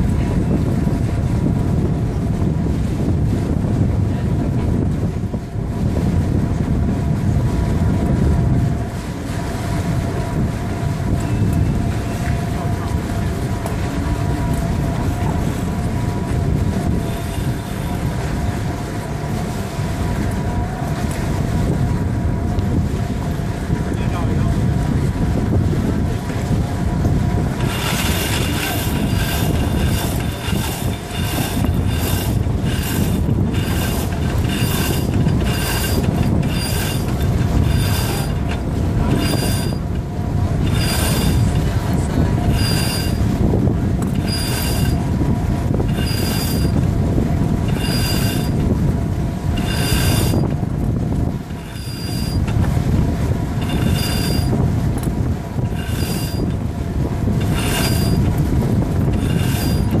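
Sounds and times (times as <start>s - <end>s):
low wind rumble: 0.0s - 60.0s
winch and halyard squealing: 16.7s - 18.3s, 27.4s - 48.8s, 49.4s - 52.6s, 53.4s - 54.7s, 55.5s - 60.0s.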